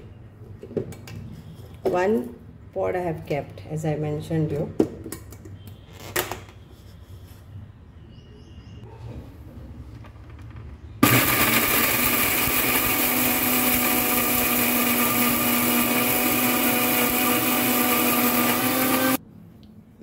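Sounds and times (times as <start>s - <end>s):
mixer grinder motor running: 11.0s - 19.2s.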